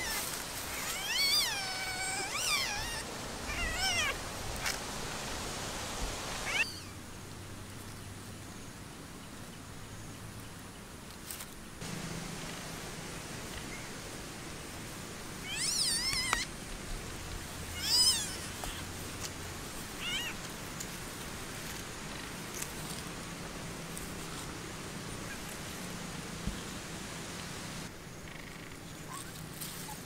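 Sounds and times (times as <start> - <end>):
high-pitched animal calls: 0.0 - 4.2, 6.4 - 7.0, 15.4 - 16.5, 17.7 - 18.9
steady background hiss: 0.0 - 30.0.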